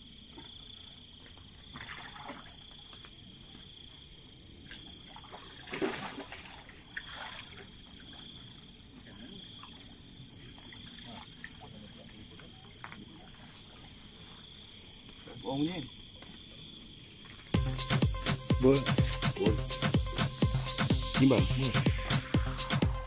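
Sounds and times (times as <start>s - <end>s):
crickets chirping: 0.0s - 23.0s
fish splashing at surface: 5.2s - 7.7s.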